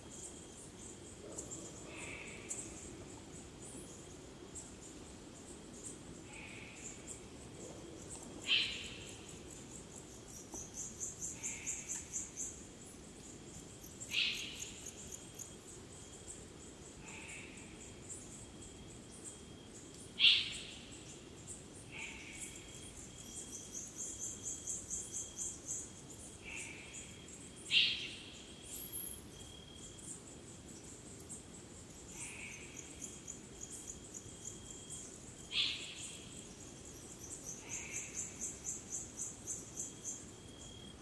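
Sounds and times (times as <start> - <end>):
crickets chirping: 0.0 - 41.0
thin steady insect tone: 0.0 - 41.0
pulsing insect trill: 8.5 - 41.0.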